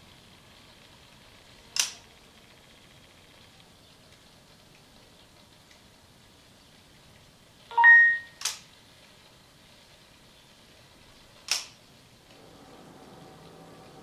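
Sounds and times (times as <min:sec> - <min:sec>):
robot dog electronic beep: 0:07.7 - 0:08.4.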